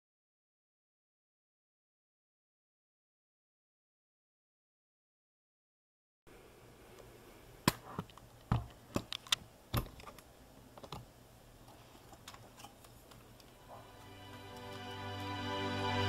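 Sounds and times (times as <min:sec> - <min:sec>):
music: 0:13.6 - 0:16.0.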